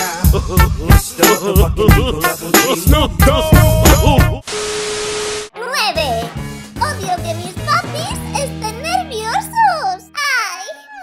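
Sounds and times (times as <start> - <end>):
upbeat music with heavy beat: 0.0 - 4.4, 6.0 - 8.4.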